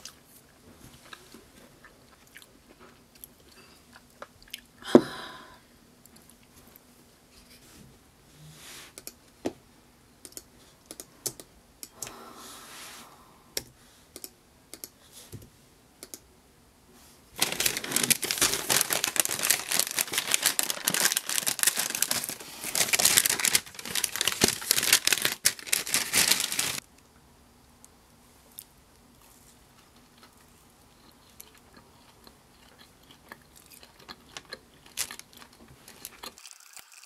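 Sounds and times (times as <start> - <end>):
paper bag crinkling: 17.4 - 26.8, 34.4 - 36.8.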